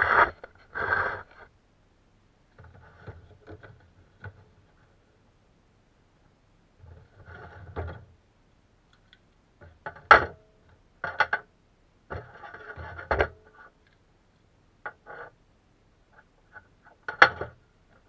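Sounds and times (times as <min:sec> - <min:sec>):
cardboard rustling and scraping: 0:00.0 - 0:01.5.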